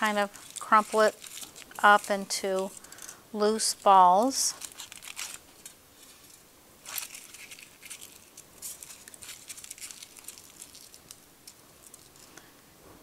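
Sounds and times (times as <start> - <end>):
aluminum foil crinkling: 0.0 - 12.5.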